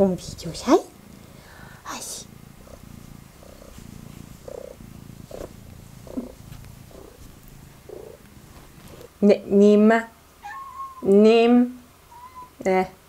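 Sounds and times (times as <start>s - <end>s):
cat purring: 0.0s - 9.8s.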